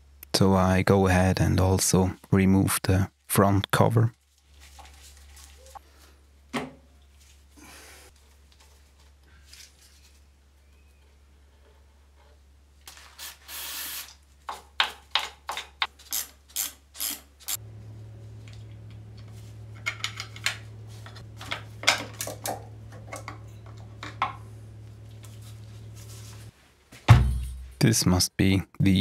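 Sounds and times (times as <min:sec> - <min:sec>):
low steady hum: 0:17.5 - 0:29.0.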